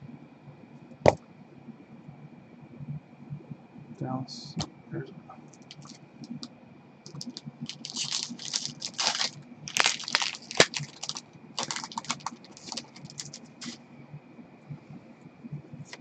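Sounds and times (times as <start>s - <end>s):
faint high whine: 0.0s - 16.0s
wrapper crinkling: 5.6s - 6.5s, 7.1s - 13.8s.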